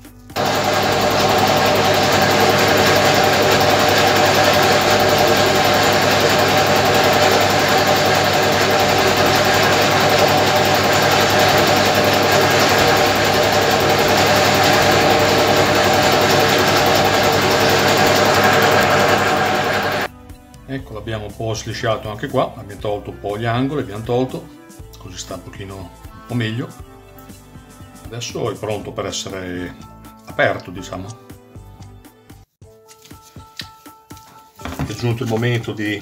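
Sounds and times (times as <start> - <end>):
machine tool cutting metal: 0.4 - 20.1.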